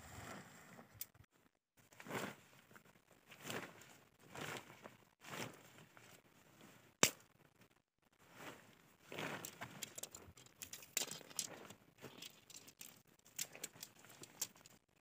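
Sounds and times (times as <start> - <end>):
tent fabric rustling: 1.9 - 7.0, 8.2 - 10.4.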